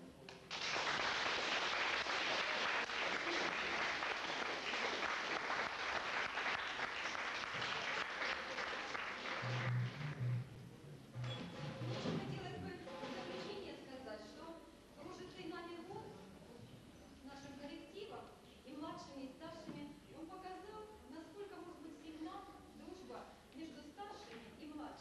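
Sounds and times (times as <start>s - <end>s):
audience applauding: 0.4s - 10.4s.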